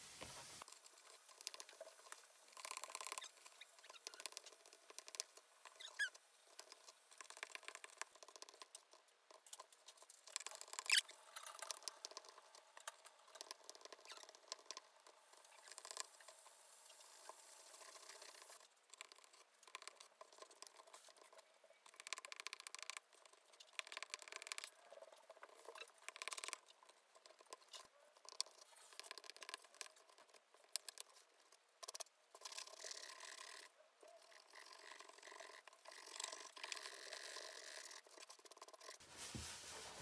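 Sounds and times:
tissue rubbing lid: 0:39.0 - 0:40.0.

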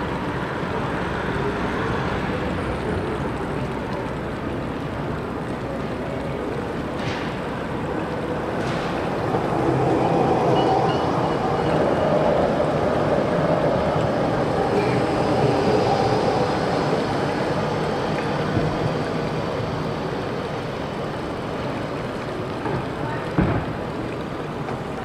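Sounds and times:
street traffic: 0:00.0 - 0:25.0
tram wheels running on rails: 0:06.7 - 0:25.0.

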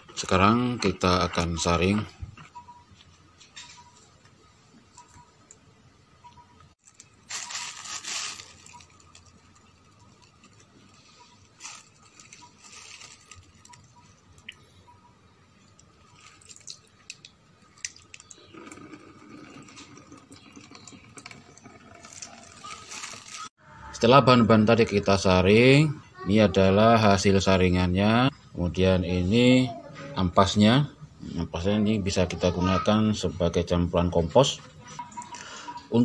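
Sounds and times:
liquid splashing and dripping: 0:15.6 - 0:22.7.

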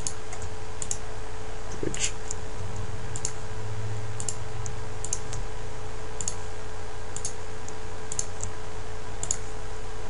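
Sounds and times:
computer mouse clicks: 0:00.0 - 0:01.0, 0:03.2 - 0:03.4, 0:04.2 - 0:05.4, 0:06.2 - 0:06.4, 0:07.2 - 0:07.4, 0:08.1 - 0:08.5, 0:09.2 - 0:09.4
steady electrical hum: 0:00.0 - 0:10.0.

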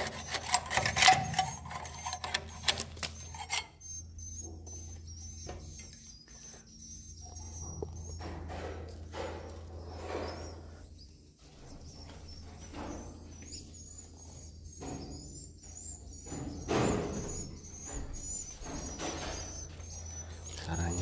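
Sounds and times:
metal scraper on concrete: 0:00.0 - 0:03.8
steady low hum: 0:00.0 - 0:21.0
swiftlets twittering: 0:18.2 - 0:21.0.

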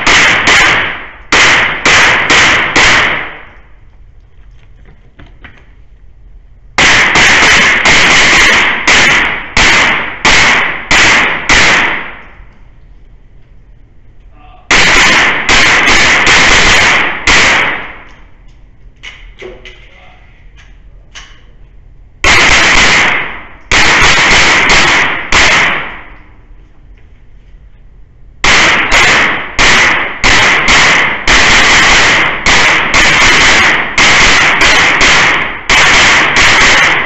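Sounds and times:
gunshots echoing: 0:00.0 - 0:03.6, 0:06.8 - 0:12.4, 0:14.7 - 0:18.2, 0:22.2 - 0:26.2, 0:28.4 - 0:37.0.

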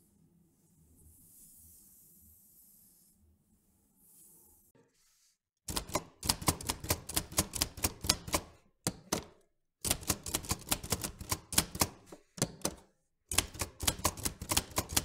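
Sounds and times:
typewriter keys clacking: 0:05.7 - 0:15.0.

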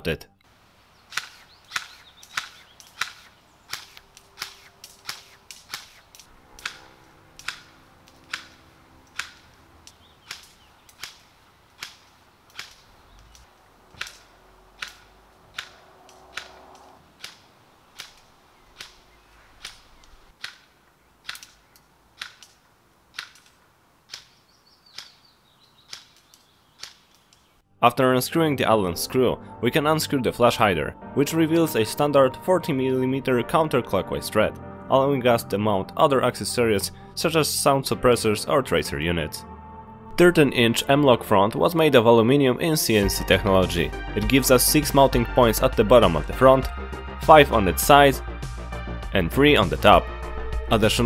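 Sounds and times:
distant airsoft rifle shots: 0:01.1 - 0:25.2.

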